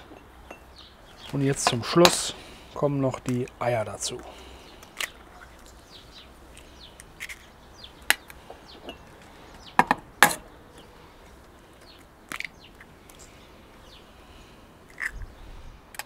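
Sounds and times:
faint birds chirping: 0:00.0 - 0:16.0
eggs cracking on bowl rim: 0:12.0 - 0:13.2, 0:14.9 - 0:15.2.

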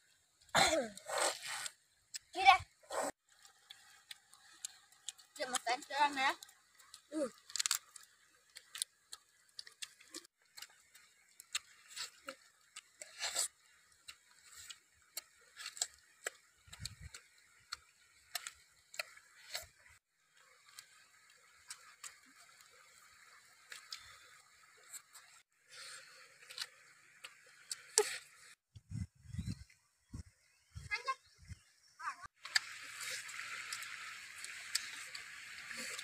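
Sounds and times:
chewing and gnawing chicken: 0:03.3 - 0:22.3
shallow stream rushing: 0:32.4 - 0:36.0.

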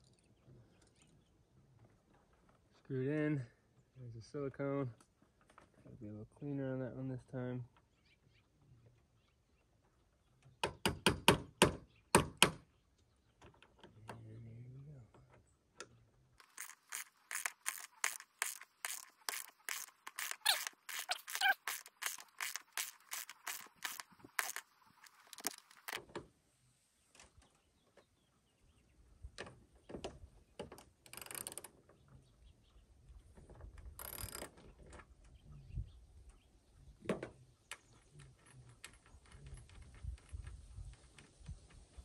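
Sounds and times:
short scraping rattles: 0:16.4 - 0:26.0
socket ratchet clicking: 0:16.4 - 0:26.0.

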